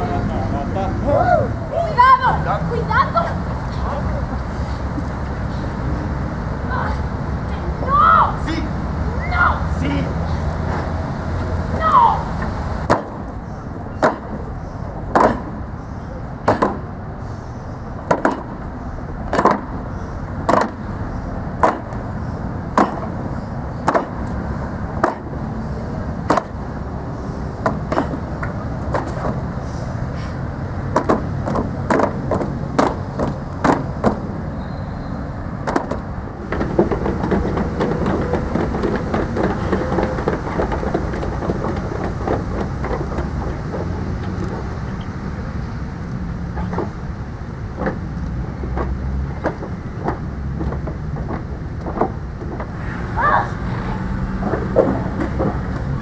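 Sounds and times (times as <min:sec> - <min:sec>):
dense shuffling: 0:35.5 - 0:45.1, 0:46.6 - 0:56.0.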